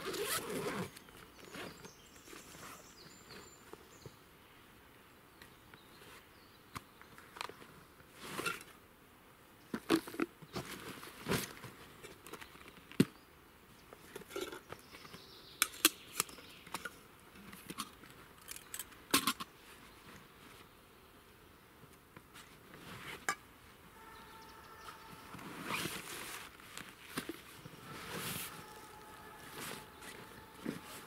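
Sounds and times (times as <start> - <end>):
backpack gear rustling: 0.0 - 1.8, 24.0 - 31.0.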